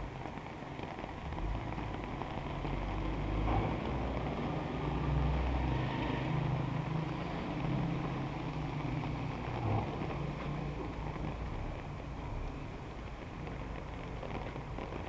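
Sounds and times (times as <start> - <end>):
tyres hissing on wet street: 0.0 - 15.0
car engines rumbling: 0.4 - 15.0.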